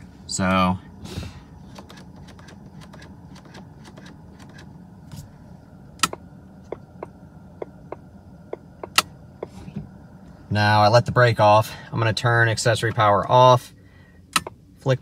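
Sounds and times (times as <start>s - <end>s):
low steady hum: 0.0s - 15.0s
headlight switch clicks: 6.0s - 6.2s, 14.3s - 14.5s.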